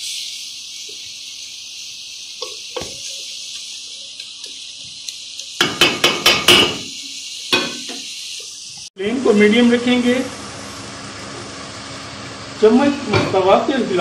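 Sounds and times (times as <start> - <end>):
food sizzling in a pot: 0.0 - 14.0
wooden spoon knocking on pot: 5.6 - 6.8.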